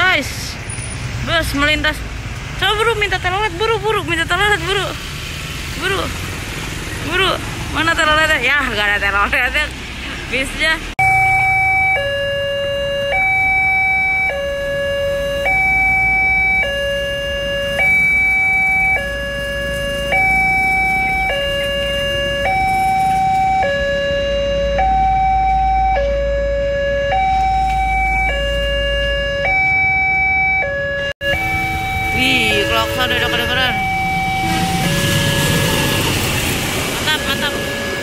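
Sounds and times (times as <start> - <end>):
two-tone level crossing alarm: 11.0 - 38.0.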